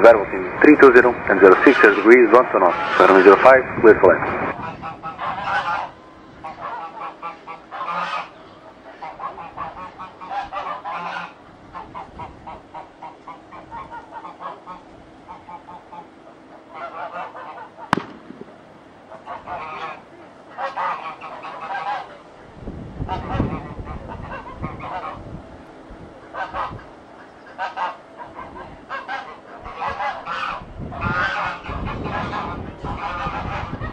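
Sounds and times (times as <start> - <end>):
sharp click: 18.0 - 18.6.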